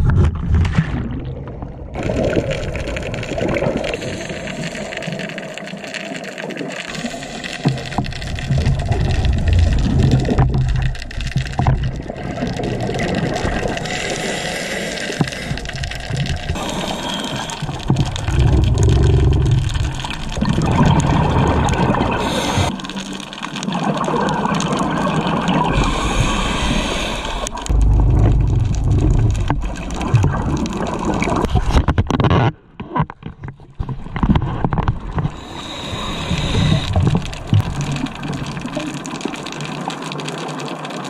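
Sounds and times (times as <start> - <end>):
gurgling exhaled bubbles: 0.0 - 31.9, 34.4 - 41.0
scuba regulator hissing inhalations: 13.8 - 15.8, 16.6 - 17.8, 22.2 - 22.8, 25.8 - 27.6, 35.4 - 37.2.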